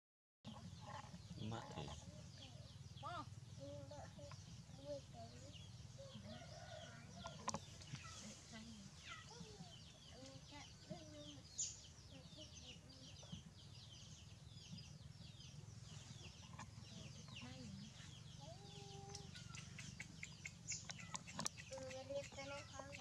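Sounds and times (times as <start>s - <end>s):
chickens clucking: 0.5s - 11.4s, 15.8s - 23.0s
chicks cheeping: 0.5s - 23.0s.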